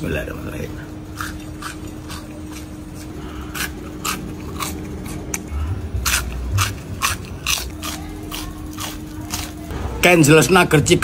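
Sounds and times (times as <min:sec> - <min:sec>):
crunchy food being chewed: 0:01.1 - 0:09.7.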